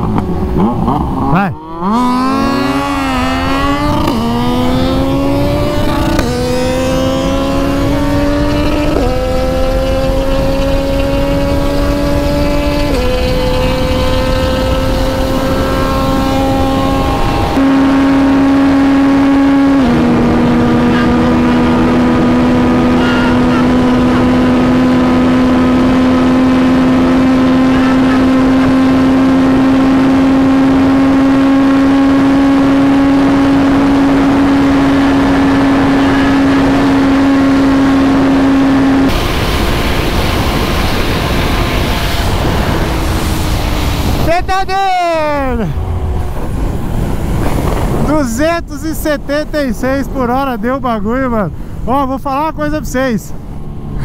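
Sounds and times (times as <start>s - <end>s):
wind rushing past: 0.0s - 23.0s, 33.2s - 52.0s
motorcycle engine at full throttle: 0.0s - 48.2s, 51.1s - 54.0s.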